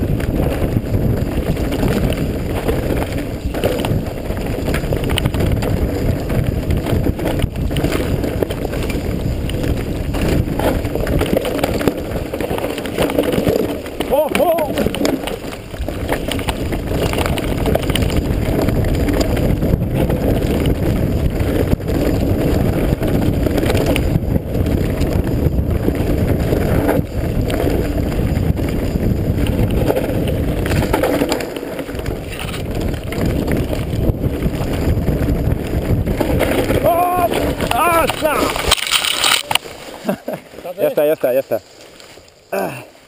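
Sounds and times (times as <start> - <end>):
wind rushing over microphone: 0.0 - 40.8
mountain bike rattle and tyre noise: 0.0 - 43.0.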